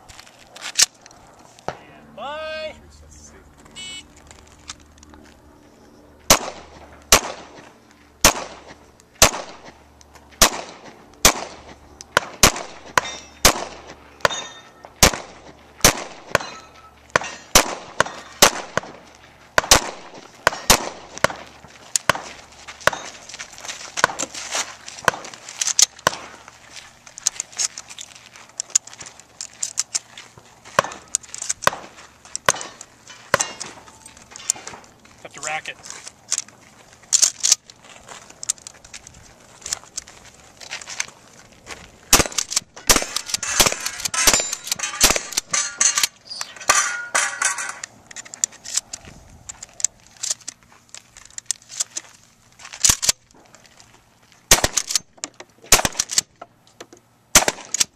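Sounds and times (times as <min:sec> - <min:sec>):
pistol shots: 0:06.3 - 0:07.6, 0:08.2 - 0:09.8, 0:10.4 - 0:19.0, 0:19.6 - 0:23.1, 0:30.8 - 0:33.8, 0:42.1 - 0:47.8, 0:54.5 - 0:55.0, 0:55.7 - 0:56.2, 0:57.3 - 0:57.9.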